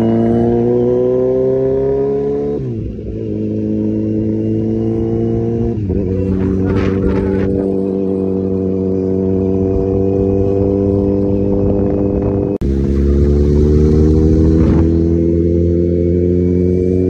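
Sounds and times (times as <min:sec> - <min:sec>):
motorcycle engine cruising: 0:00.0 - 0:17.0.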